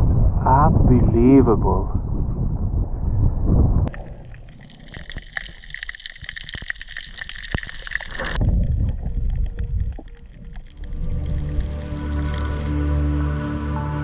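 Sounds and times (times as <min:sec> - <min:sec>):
water and wind rushing: 0:00.0 - 0:14.0
faint underwater clicks: 0:03.8 - 0:12.8.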